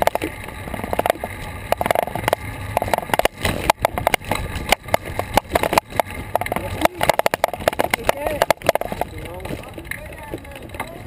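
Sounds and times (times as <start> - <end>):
bicycle rolling low rumble: 0.0 - 11.0
bike clicks and knocks: 0.0 - 11.0
road and wind noise: 0.0 - 11.0.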